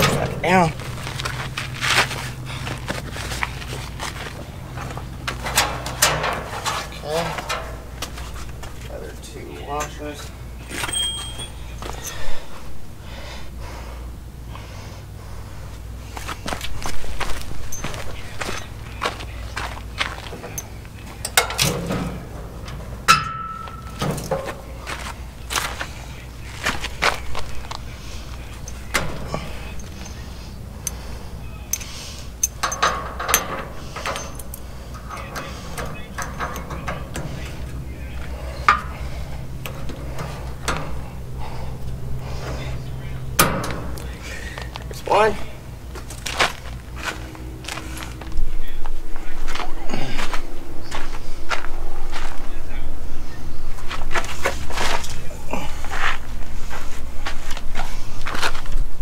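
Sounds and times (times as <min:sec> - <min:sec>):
metal clinks and knocks: 0:00.0 - 0:08.9, 0:09.7 - 0:12.5, 0:17.2 - 0:26.0, 0:26.6 - 0:48.5
steady low hum: 0:00.0 - 0:59.0
person breathing hard: 0:11.9 - 0:16.4, 0:41.0 - 0:42.8.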